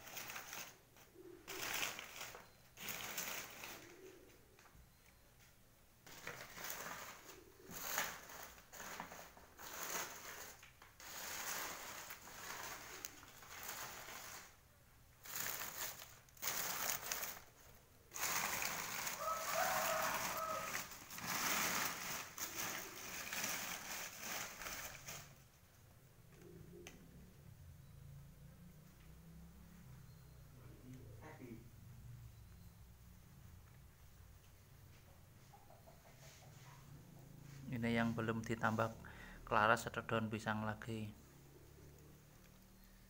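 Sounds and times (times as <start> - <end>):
dry leaves rustling and crackling: 15.2 - 17.5, 18.1 - 25.4.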